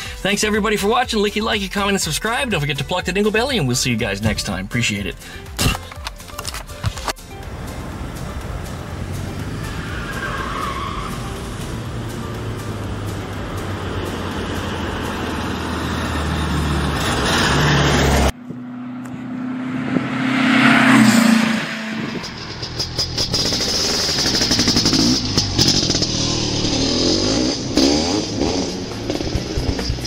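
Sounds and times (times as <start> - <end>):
outro music: 0.2 - 30.0
car engine running: 4.1 - 30.0
whoosh: 14.2 - 30.0.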